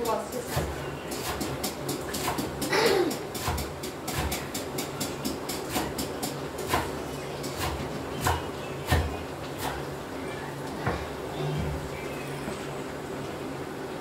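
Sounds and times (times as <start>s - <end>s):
knife chopping greens: 0.4s - 2.6s, 3.4s - 9.8s.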